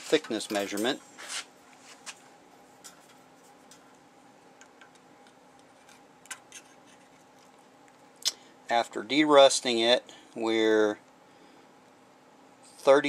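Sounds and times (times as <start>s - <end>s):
faint hum: 0.0s - 13.0s
metal tools clicking and tapping: 0.2s - 1.0s.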